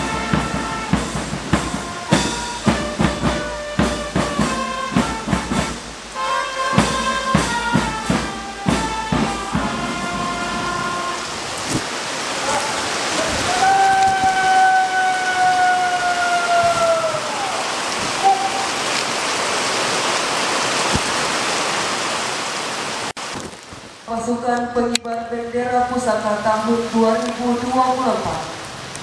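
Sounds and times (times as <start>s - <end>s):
long held note: 0.0s - 11.4s, 18.2s - 18.8s
marching band brass and drums: 0.0s - 11.8s
heavy rain hissing: 0.0s - 24.4s, 25.3s - 29.0s.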